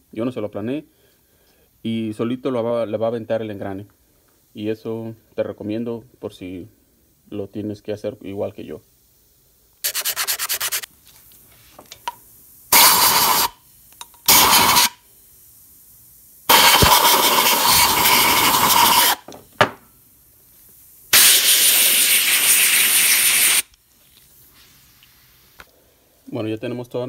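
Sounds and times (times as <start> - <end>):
compressed air hissing bursts: 9.8 - 10.9, 11.6 - 23.7.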